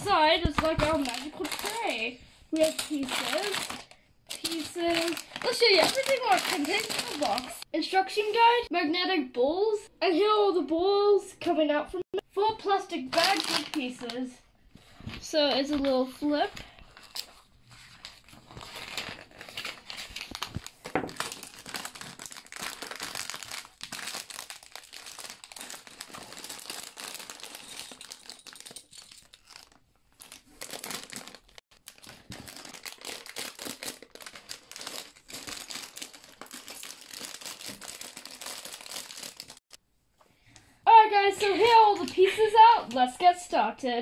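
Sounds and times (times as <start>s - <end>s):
plastic bags crinkling and tearing: 0.0s - 7.7s, 13.0s - 14.2s, 16.4s - 39.8s.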